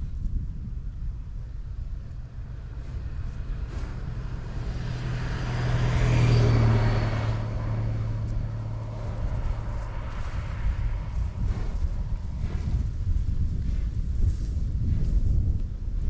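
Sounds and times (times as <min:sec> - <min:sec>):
wind rumble on microphone: 0:00.0 - 0:16.0
car passing: 0:02.1 - 0:14.0.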